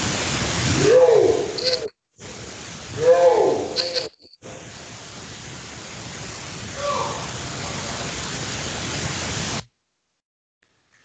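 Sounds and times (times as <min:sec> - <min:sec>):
heavy steady hiss: 0:00.0 - 0:11.0.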